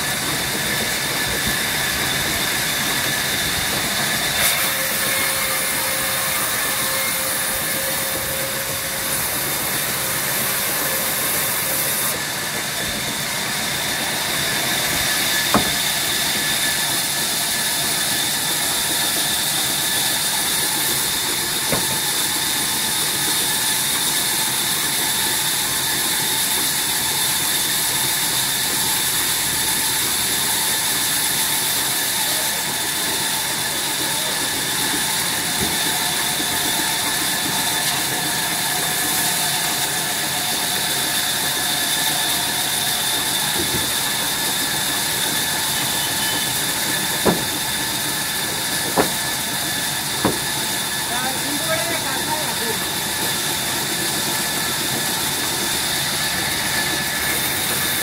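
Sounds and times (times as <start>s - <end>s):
band saw cutting wood: 0.0s - 58.0s
sharp knocks: 15.4s - 16.1s, 21.6s - 22.2s, 46.3s - 49.4s, 50.2s - 50.7s.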